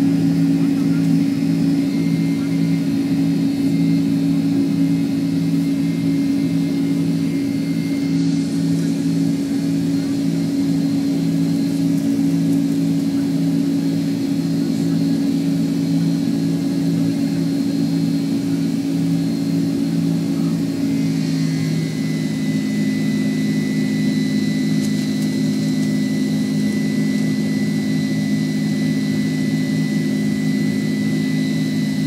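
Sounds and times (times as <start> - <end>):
jet engines droning in cabin: 0.0 - 32.0.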